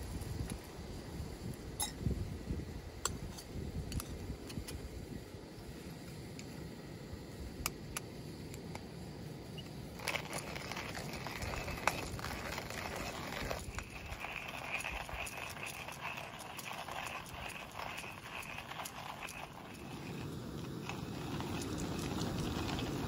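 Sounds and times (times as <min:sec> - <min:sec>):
coffee beans rattling: 0:09.9 - 0:23.0
hand grinder crunching beans: 0:10.0 - 0:23.0.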